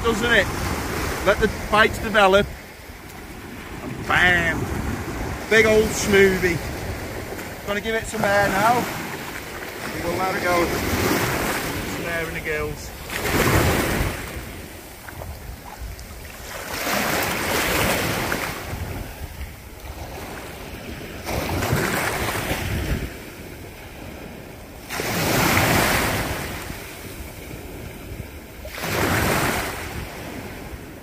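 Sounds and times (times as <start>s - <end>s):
wind rumble on microphone: 0.0s - 7.7s, 12.7s - 31.0s
surf washing in: 0.0s - 31.0s.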